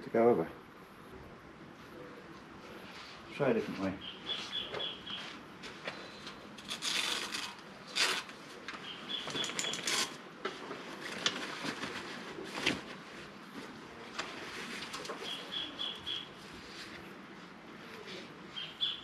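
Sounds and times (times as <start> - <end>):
bird chirping: 4.0 - 5.3, 8.8 - 10.0, 15.2 - 16.4, 18.5 - 19.0
umbrella fabric and frame rustling: 5.1 - 15.6.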